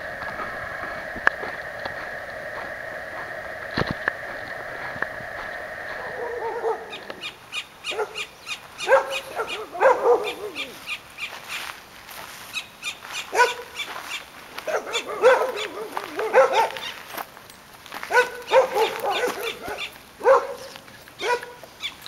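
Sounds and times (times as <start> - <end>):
dog whining and yelping: 8.8 - 11.0, 18.1 - 21.5.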